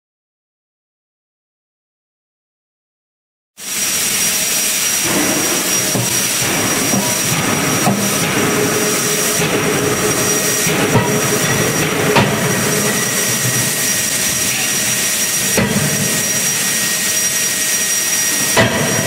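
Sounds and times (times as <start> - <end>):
hydraulic system rushing whine: 3.6 - 19.0
forging hammer striking metal: 4.9 - 19.0.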